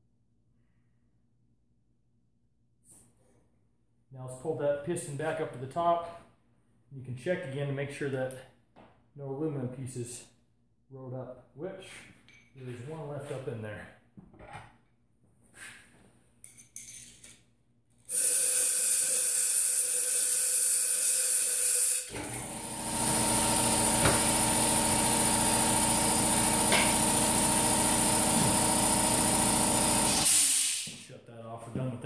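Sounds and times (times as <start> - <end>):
air blow gun hissing: 18.1 - 31.1
machine hum with hiss: 18.1 - 31.1.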